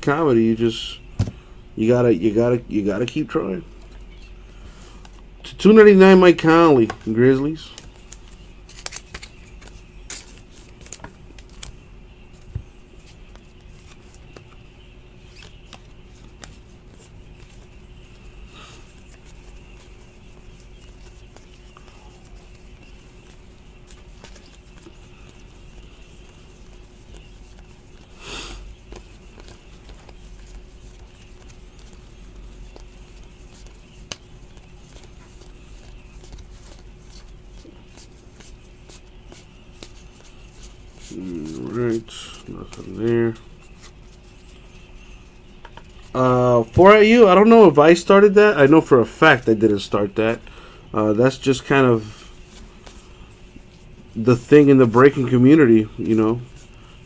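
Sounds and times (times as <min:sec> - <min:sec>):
faint steady hum: 0:00.0 - 0:57.0
trading cards handled: 0:06.4 - 0:46.1.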